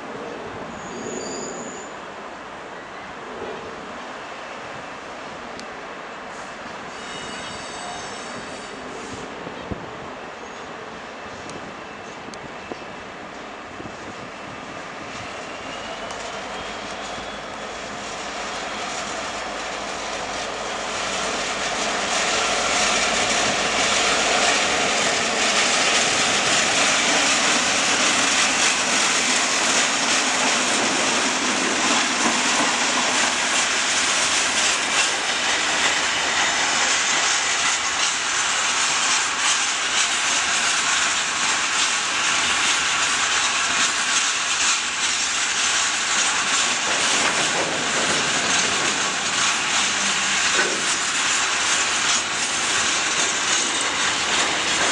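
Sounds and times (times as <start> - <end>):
diesel locomotive engine passing: 0.0 - 54.9
wagons running on rails: 15.8 - 54.9.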